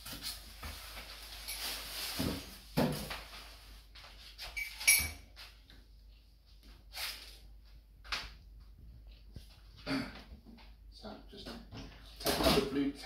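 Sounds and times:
packing material rustling: 0.1s - 3.6s.

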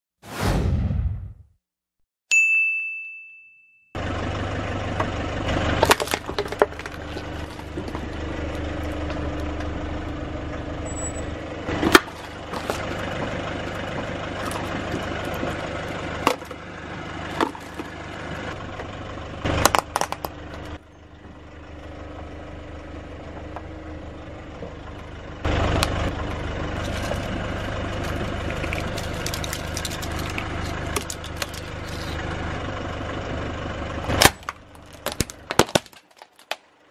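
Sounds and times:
short ding: 2.3s - 4.0s
car engine idling: 4.0s - 35.8s
plastic crushed under tyre: 5.8s - 9.2s, 11.7s - 13.4s, 14.0s - 16.6s, 19.6s - 20.4s, 28.0s - 32.2s, 34.1s - 36.7s.

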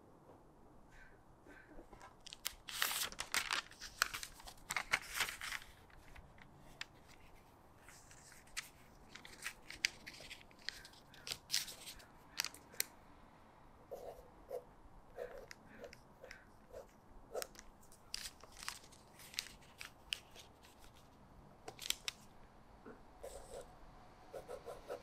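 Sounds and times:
paper rustling and crackling: 2.0s - 12.9s, 17.4s - 22.3s.

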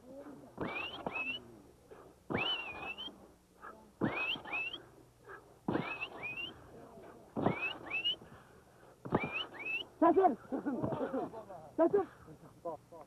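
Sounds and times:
short rising squeaks: 0.6s - 1.4s, 4.0s - 4.8s, 5.7s - 6.5s, 7.4s - 8.2s, 9.1s - 9.8s.

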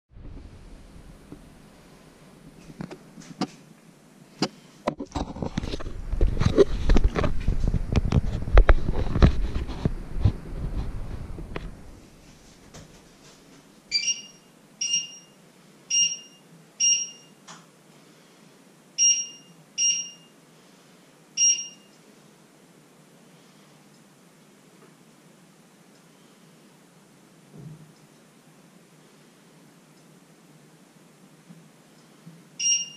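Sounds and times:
camera handling rumbles and knocks: 4.9s - 10.4s
short high electronic beeps: 13.9s - 17.3s, 21.4s - 21.9s, 32.6s - 32.9s.

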